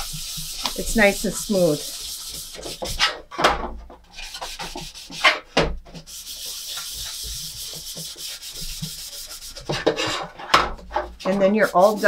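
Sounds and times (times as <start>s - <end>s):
sanding pad scraping plastic: 0.0s - 3.2s, 4.1s - 10.3s, 11.2s - 12.0s.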